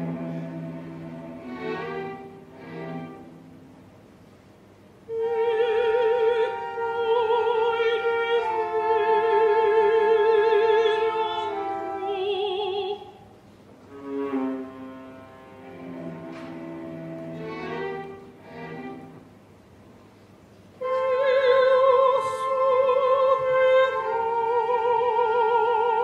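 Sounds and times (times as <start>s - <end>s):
quiet orchestral strings: 0.0s - 26.0s
operatic soprano singing: 5.1s - 13.3s, 20.8s - 26.0s.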